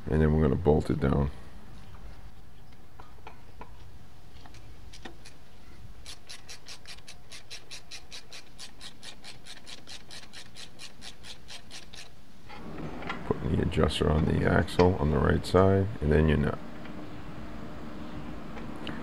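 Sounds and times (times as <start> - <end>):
hand ratchet clicking: 6.0 - 12.1.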